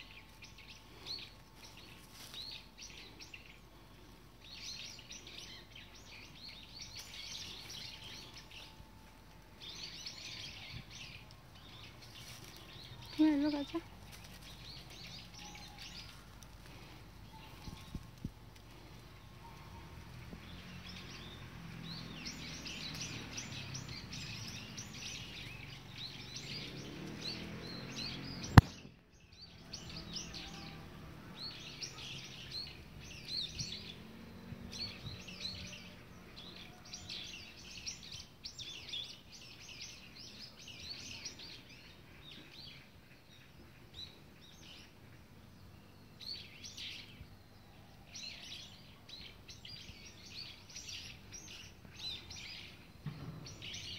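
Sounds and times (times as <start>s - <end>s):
low steady rumble: 0.0s - 22.0s
small birds chirping: 0.0s - 53.9s
sharp click: 28.6s - 28.9s.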